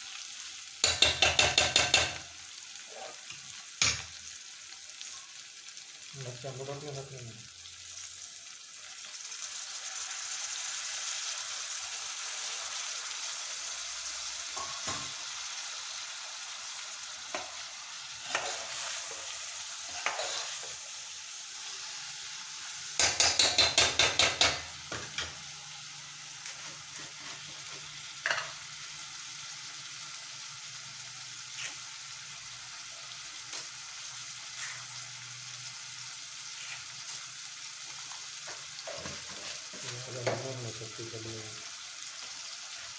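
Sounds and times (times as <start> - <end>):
vegetables sizzling in a pot: 0.0 - 42.9
metal spoon scraping a pot: 18.2 - 19.2, 19.9 - 20.8.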